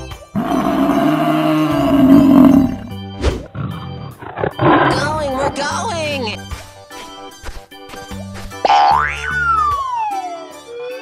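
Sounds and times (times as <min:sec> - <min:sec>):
background music: 0:00.0 - 0:11.0
cow mooing: 0:00.4 - 0:03.0.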